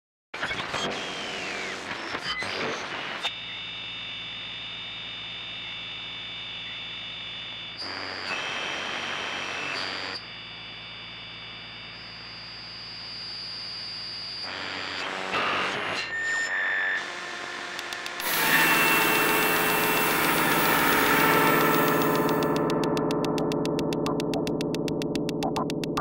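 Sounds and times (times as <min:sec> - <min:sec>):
ambient synthesizer music: 0:17.9 - 0:26.0.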